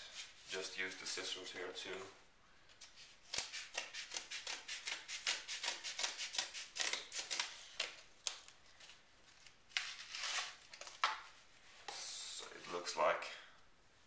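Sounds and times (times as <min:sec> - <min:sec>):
scissors cutting cardboard: 0:02.8 - 0:08.0.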